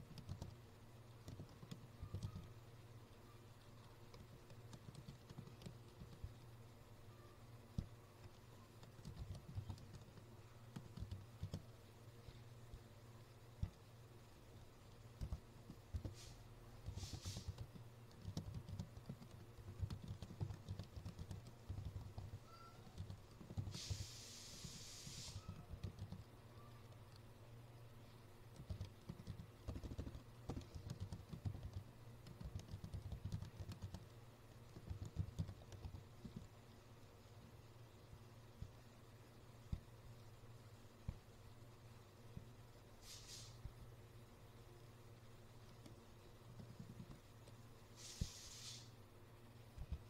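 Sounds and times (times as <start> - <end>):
computer keyboard typing: 0.0 - 2.6, 3.6 - 6.5, 7.7 - 11.8, 14.9 - 16.2, 16.8 - 24.1, 25.4 - 27.3, 28.5 - 36.5, 45.6 - 47.6
steady low hum: 0.0 - 50.0
brief hiss: 23.7 - 25.6, 43.0 - 43.6, 48.0 - 49.0.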